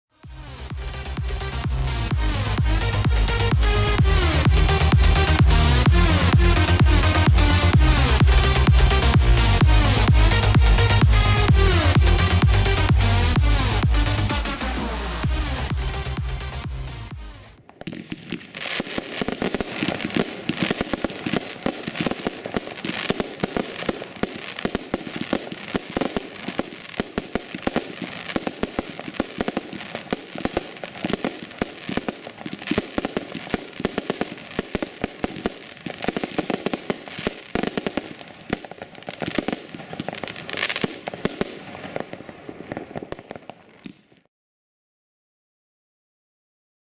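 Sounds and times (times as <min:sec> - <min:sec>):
crackling firework stars: 0:00.2 - 0:44.3
firework launches and bursts: 0:17.6 - 0:44.1.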